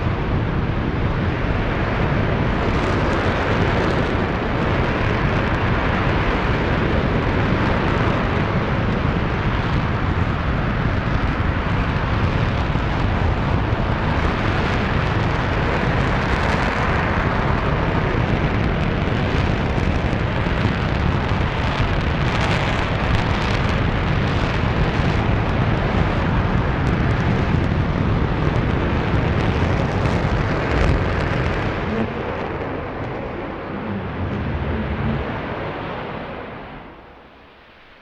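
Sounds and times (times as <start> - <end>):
rocket engine roaring: 0.0 - 38.0.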